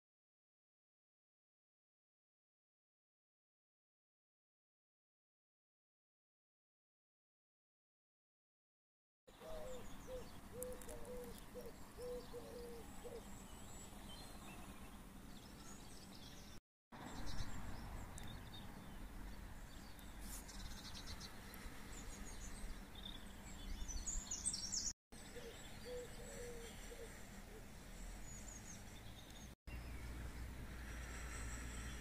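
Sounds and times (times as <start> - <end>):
birds calling: 9.3 - 30.5.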